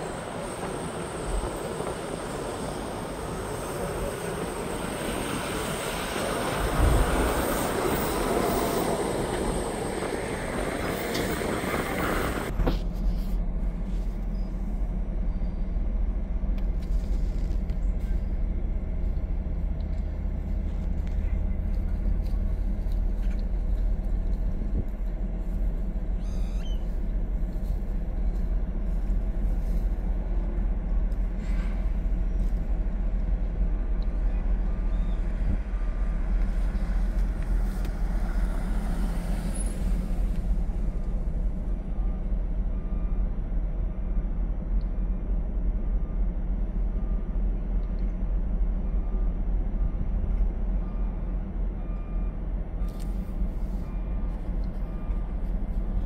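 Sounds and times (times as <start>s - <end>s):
vehicle engine low rumble: 0.0s - 56.0s.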